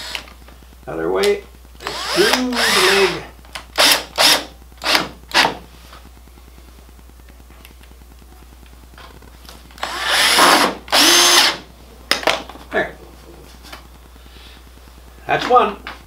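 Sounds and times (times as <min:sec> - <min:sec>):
cordless drill driving screw: 0:01.8 - 0:03.2, 0:03.8 - 0:05.5, 0:09.8 - 0:11.6.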